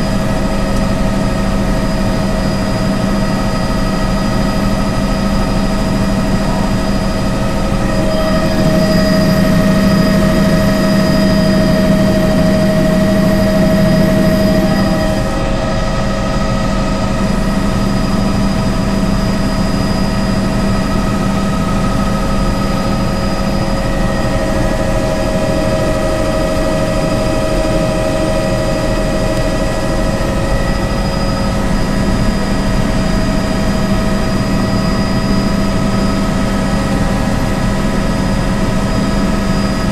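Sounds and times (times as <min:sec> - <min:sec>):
helicopter rotor and engine drone: 0:00.0 - 0:39.9
steady tones: 0:05.5 - 0:19.0.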